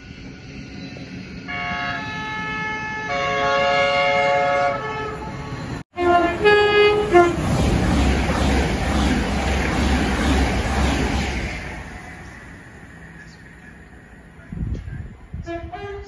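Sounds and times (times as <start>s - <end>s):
train rushing past: 0.0s - 16.0s
short train horn notes: 1.5s - 7.4s, 15.4s - 16.0s
train horn chord: 1.5s - 7.5s, 15.4s - 16.0s.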